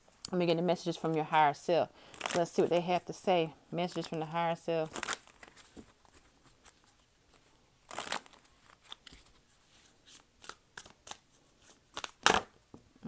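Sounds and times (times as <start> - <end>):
cards shuffling: 4.9 - 12.5.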